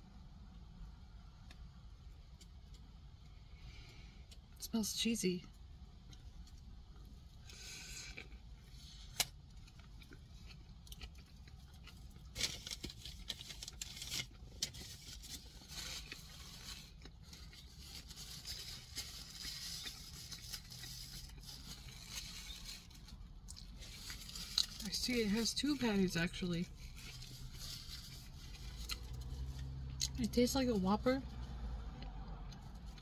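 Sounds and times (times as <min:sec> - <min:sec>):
person chewing: 0:07.4 - 0:24.8.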